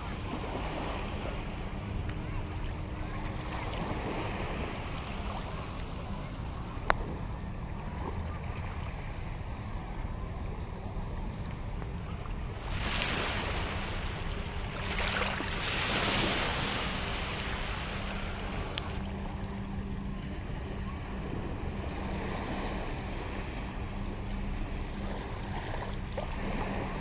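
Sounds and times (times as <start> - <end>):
steady low hum: 0.0 - 27.0
surf washing over sand: 12.5 - 19.2.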